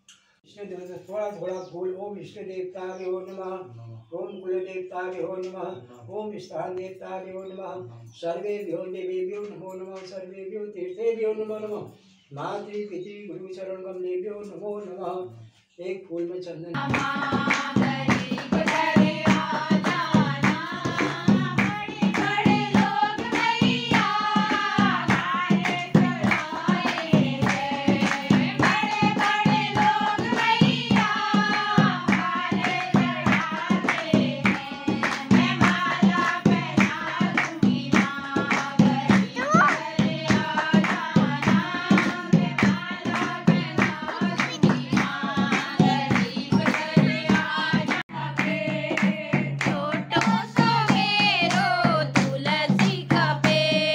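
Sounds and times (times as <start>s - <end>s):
hand drum beating: 16.8s - 53.9s
rhythmic hand clapping: 16.8s - 53.9s
women singing in unison: 16.8s - 53.9s.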